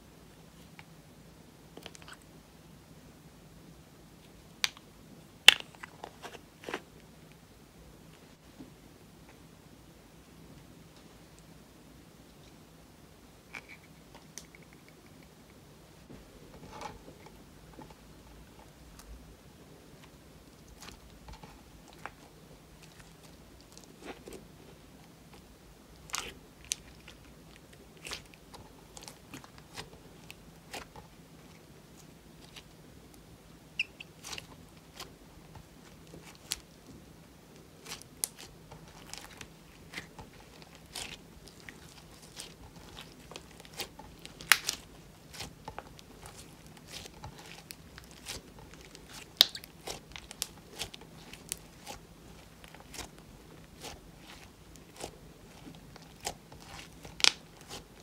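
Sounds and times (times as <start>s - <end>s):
slime being kneaded with sticky pops: 25.3s - 32.8s, 33.8s - 36.9s, 37.5s - 58.0s.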